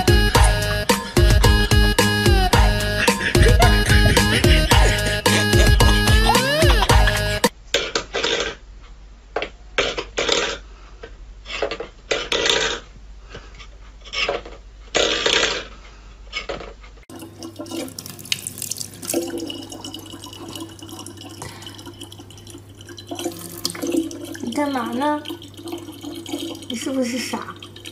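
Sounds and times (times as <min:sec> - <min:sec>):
tap water running into plastic bottle: 0:17.1 - 0:27.9.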